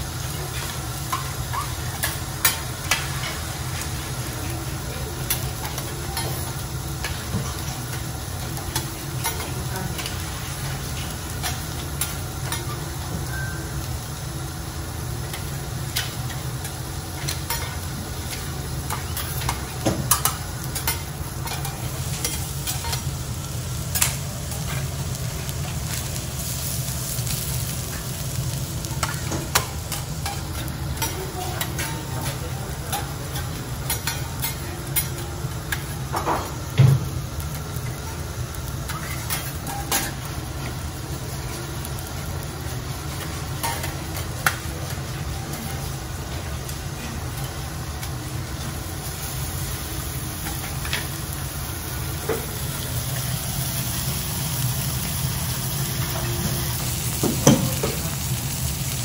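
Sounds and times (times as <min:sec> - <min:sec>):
food sizzling on a griddle: 0:00.0 - 0:59.0.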